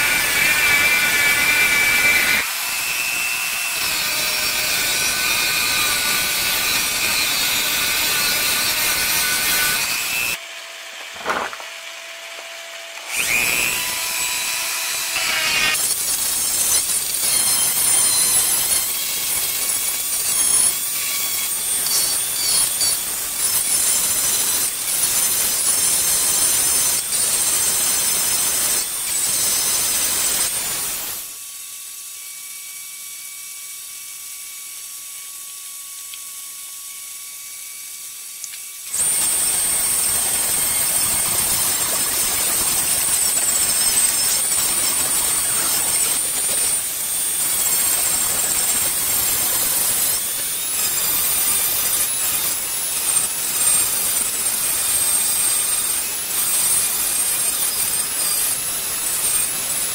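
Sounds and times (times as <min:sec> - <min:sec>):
grinding with high squeal: 0:39.0 - 0:52.4.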